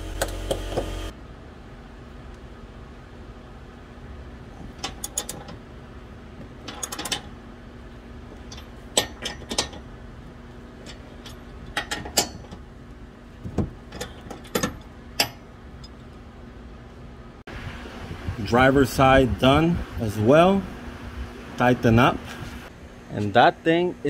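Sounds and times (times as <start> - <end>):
metal bolts clinking: 4.6 - 5.6, 6.6 - 7.4, 8.4 - 9.9, 10.8 - 12.7, 13.6 - 16.2.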